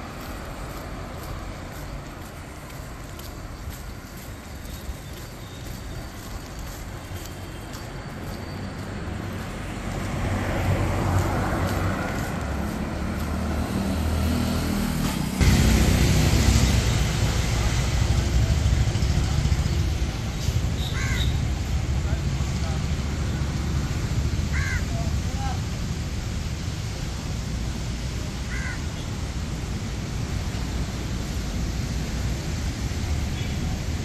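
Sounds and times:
waves: 0.0 - 13.4, 21.5 - 34.0
wind: 0.0 - 34.0
car engine passing: 9.1 - 24.7.

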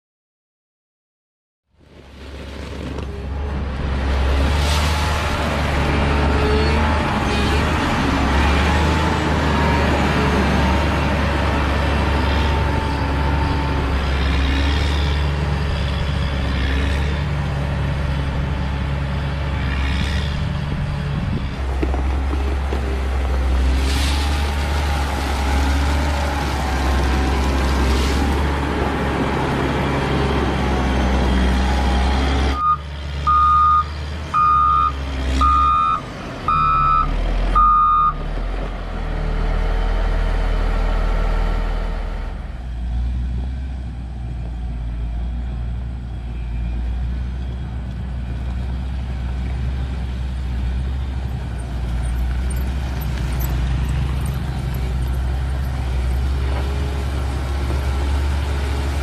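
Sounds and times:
diesel engine running: 2.9 - 59.0
blade working gravel: 21.3 - 29.6
reversing alarm beeps: 32.6 - 38.2.

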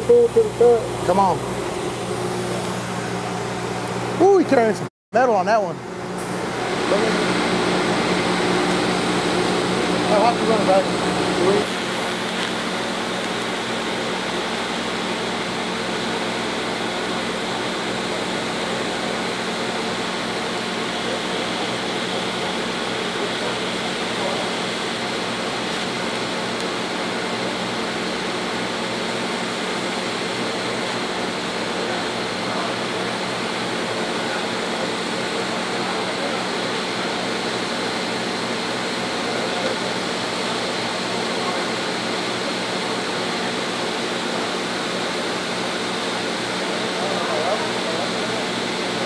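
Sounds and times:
welding arc hissing: 6.2 - 41.2.

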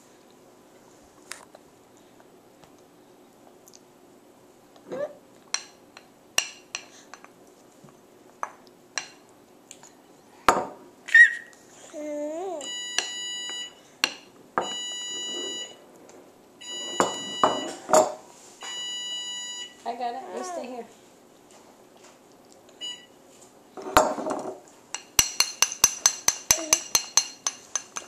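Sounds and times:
appliance alarm beeping: 12.6 - 13.8, 14.6 - 15.8, 16.6 - 17.9, 18.6 - 19.8, 22.8 - 23.1
metal spoon clinking on dish: 24.9 - 28.0.

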